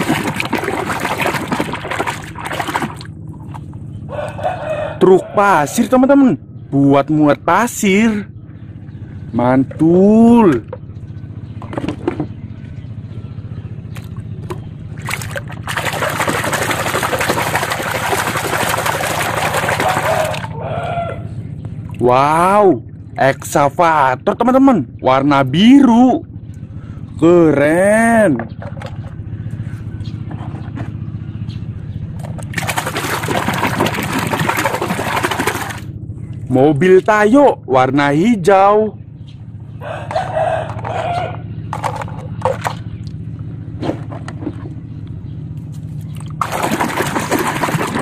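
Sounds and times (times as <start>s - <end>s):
hand scrubbing toy in water: 0.0s - 3.7s, 15.0s - 20.6s, 32.5s - 35.9s, 46.4s - 48.0s
water splashing: 0.0s - 3.7s, 14.9s - 20.5s, 32.4s - 35.9s, 46.1s - 48.0s
steady low hum: 0.0s - 48.0s.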